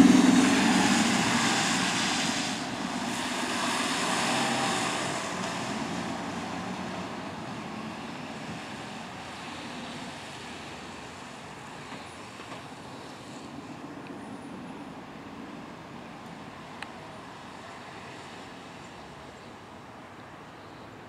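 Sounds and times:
diesel engine driving away: 0:00.0 - 0:13.2.

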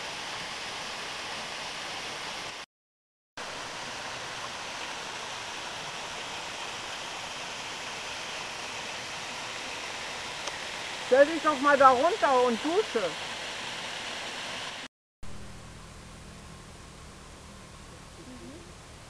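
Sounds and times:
waterfall rushing over rocks: 0:00.0 - 0:02.6, 0:03.4 - 0:14.9.

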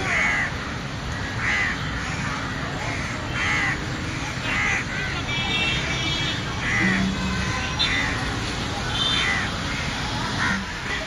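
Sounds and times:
crow cawing: 0:09.2 - 0:11.0.

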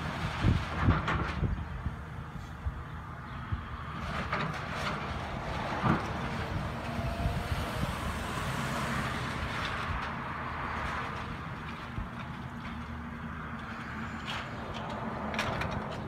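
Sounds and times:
excavator diesel engine running: 0:03.9 - 0:16.0.

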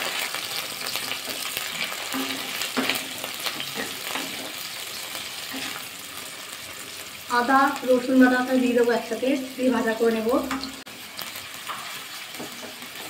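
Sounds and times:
onions sizzling in oil: 0:00.0 - 0:13.0
spatula scraping pan: 0:01.1 - 0:05.9.

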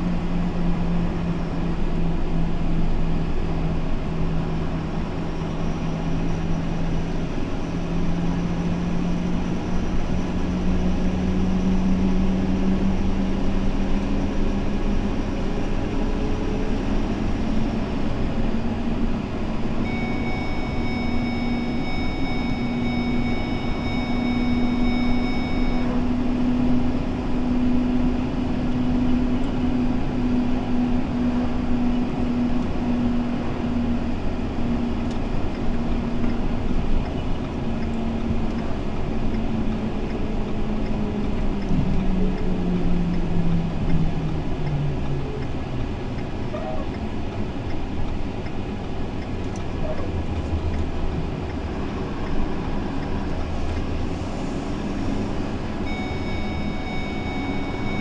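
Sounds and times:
vehicle engine drone: 0:00.0 - 0:58.0
faint high-pitched tone: 0:19.8 - 0:26.2, 0:55.8 - 0:58.0.

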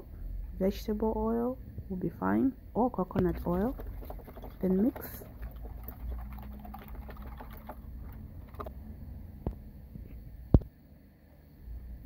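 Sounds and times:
whisk clicking in glass bowl: 0:03.2 - 0:08.7.

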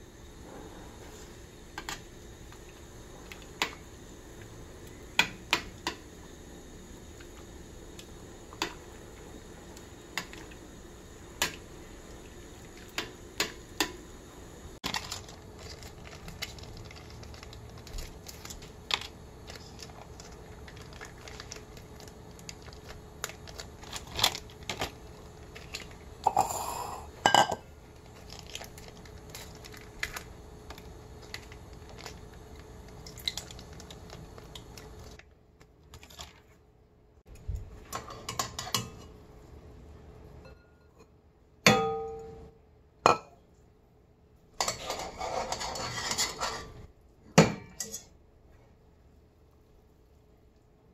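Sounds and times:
faint steady hum: 0:00.0 - 0:50.9
utensils clinking on metal pot: 0:26.2 - 0:27.6, 0:47.5 - 0:48.1.

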